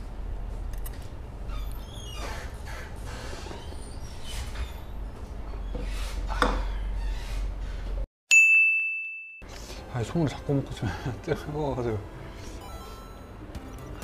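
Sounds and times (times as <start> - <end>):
bell-like ding: 8.3 - 9.5.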